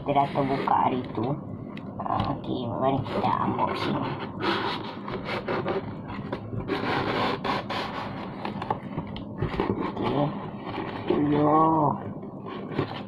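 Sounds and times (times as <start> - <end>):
cardboard box rubbing and scraping: 3.2 - 8.4.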